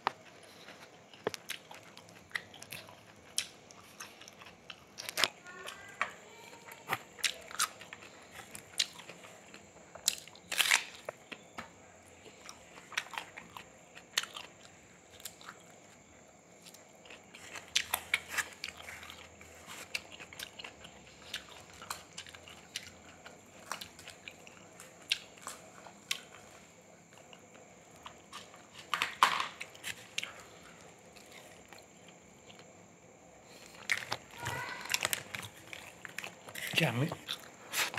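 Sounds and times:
person chewing crunchy food: 0.0s - 37.9s.

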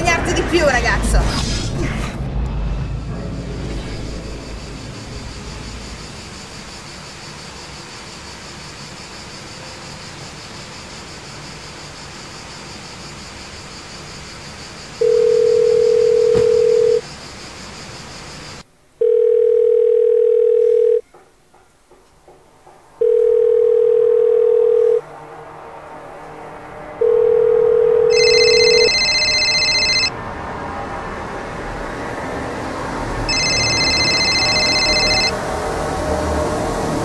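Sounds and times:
outdoor background noise: 0.0s - 37.0s
telephone ringback tone: 15.0s - 17.0s, 19.0s - 21.0s, 23.0s - 25.0s, 27.0s - 30.1s, 33.3s - 35.4s.

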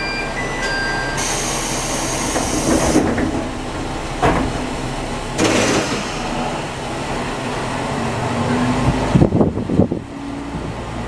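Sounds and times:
diesel engine idling: 0.0s - 10.1s
air hiss of pneumatic doors: 1.2s - 3.2s, 5.4s - 6.7s.

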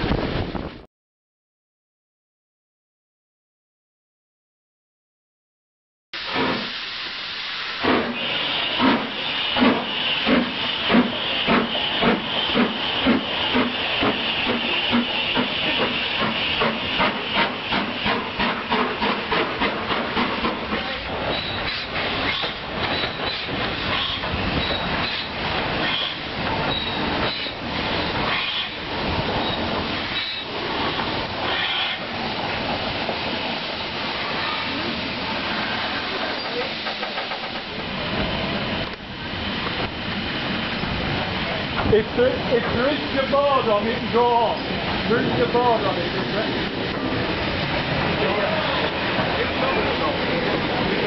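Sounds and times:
steam locomotive exhaust chuffs: 6.2s - 41.9s
steam hissing: 6.2s - 51.0s.

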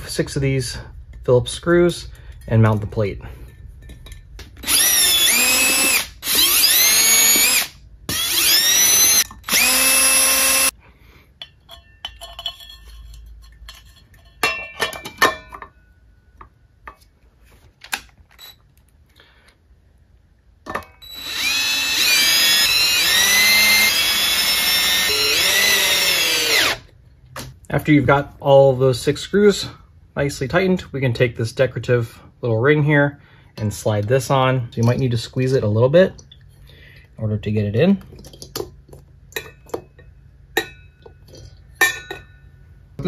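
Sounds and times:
cordless drill driving screws: 4.6s - 10.7s, 21.0s - 26.8s.

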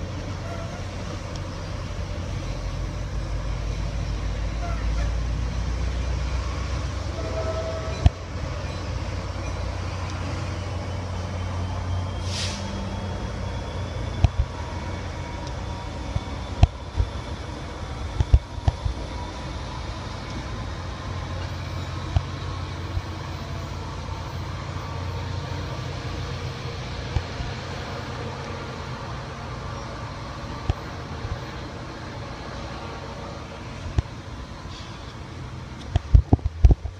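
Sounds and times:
diesel locomotive rumble: 0.0s - 36.9s
brief hiss: 12.2s - 12.8s.

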